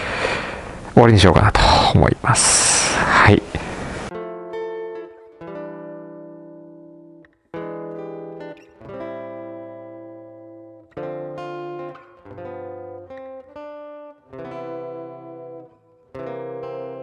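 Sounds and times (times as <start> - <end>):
strummed acoustic guitar chords: 4.1 - 17.0.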